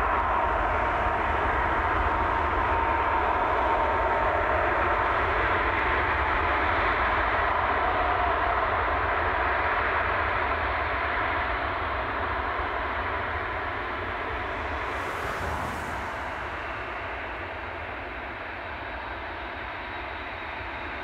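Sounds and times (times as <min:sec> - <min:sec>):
jet engines running: 0:11.8 - 0:19.9.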